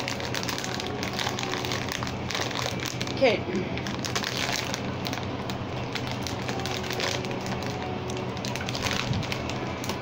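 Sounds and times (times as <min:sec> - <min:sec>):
plastic bag rustling: 0:00.0 - 0:10.0.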